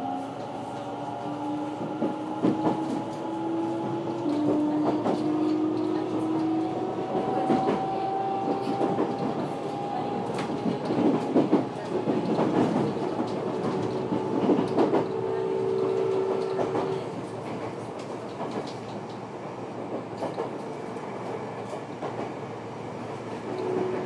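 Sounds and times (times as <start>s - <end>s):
train wheels rumbling on rails: 0.0s - 24.0s
clickety-clack of rail joints: 0.2s - 24.0s.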